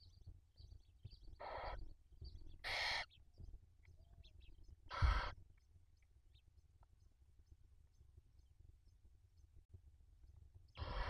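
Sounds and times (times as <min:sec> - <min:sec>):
owl chicks hissing begging calls: 0:01.4 - 0:01.8, 0:02.6 - 0:03.1, 0:04.9 - 0:05.4, 0:10.8 - 0:11.0.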